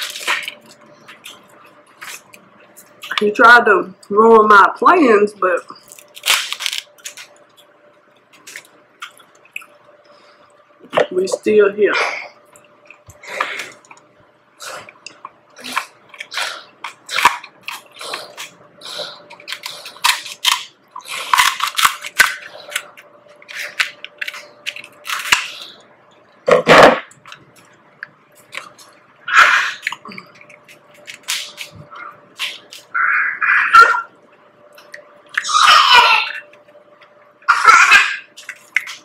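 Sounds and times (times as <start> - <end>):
crab shells cracking: 5.9 - 7.7, 14.9 - 18.6, 19.2 - 25.8, 29.8 - 31.8, 38.3 - 39.0
chewing: 8.3 - 9.9, 29.8 - 33.0, 38.4 - 39.0.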